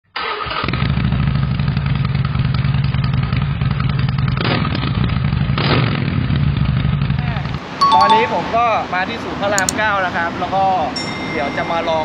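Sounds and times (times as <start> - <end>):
motorcycle engine running: 0.9 - 7.2.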